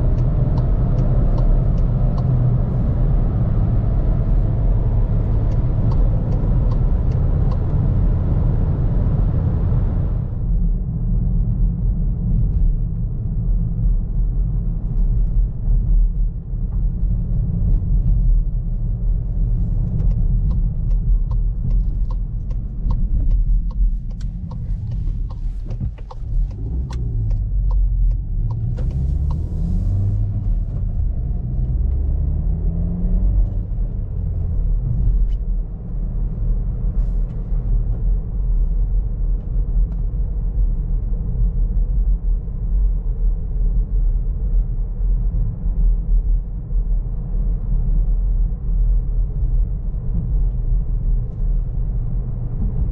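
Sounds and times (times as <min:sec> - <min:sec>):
turn signal ticking: 0:00.0 - 0:10.4, 0:19.4 - 0:32.2
car engine accelerating: 0:00.0 - 0:10.6, 0:16.8 - 0:42.5
road rumble: 0:00.0 - 0:52.9.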